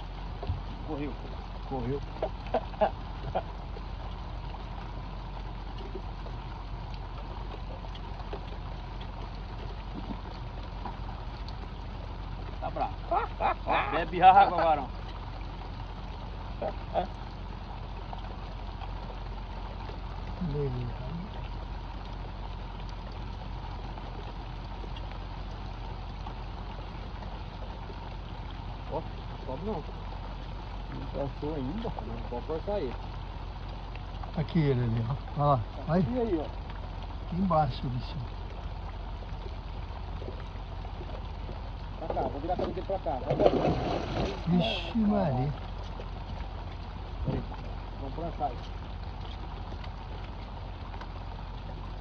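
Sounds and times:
low even rumble: 0.0s - 52.0s
rain falling on river: 0.0s - 52.0s.

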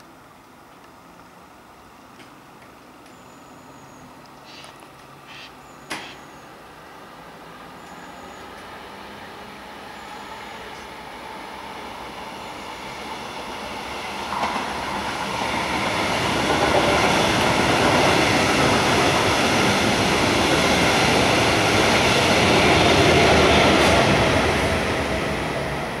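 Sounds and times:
train passing at speed: 5.1s - 26.0s.

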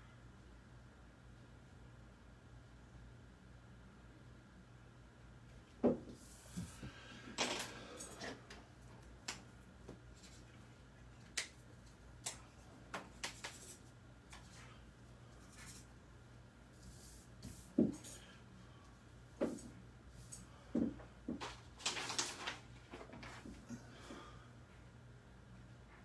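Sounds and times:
pens clicking on a desk: 11.2s - 14.5s
paper sliding and rustling: 21.4s - 23.6s.

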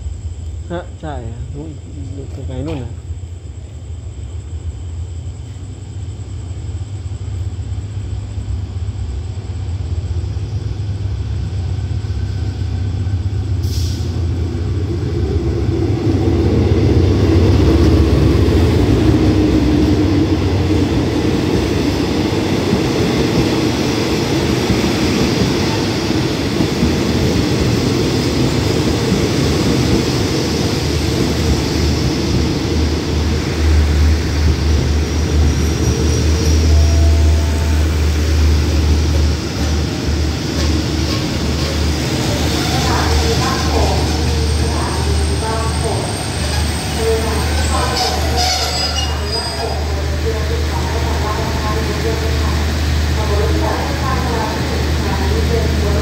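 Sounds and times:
locomotive engine drone: 25.3s - 56.0s.

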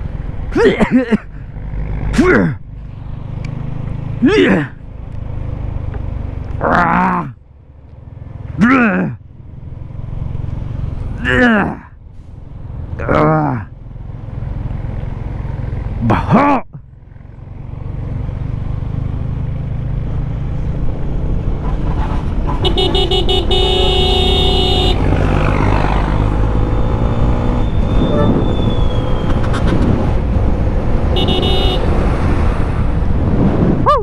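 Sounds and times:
motorcycle engine: 1.2s - 16.2s, 16.8s - 33.2s
vehicle horn: 21.6s - 25.2s, 28.0s - 28.4s, 29.4s - 30.0s, 31.1s - 31.9s
wind noise: 27.3s - 34.0s.

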